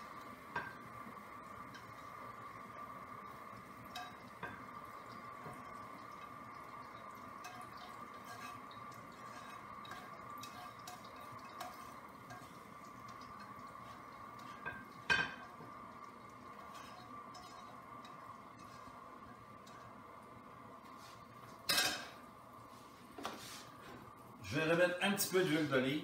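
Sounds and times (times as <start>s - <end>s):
faint steady hum: 0.0s - 26.0s
utensil clanking on pan: 3.8s - 15.8s
utensil scraping a frying pan: 3.9s - 15.7s, 16.4s - 20.0s.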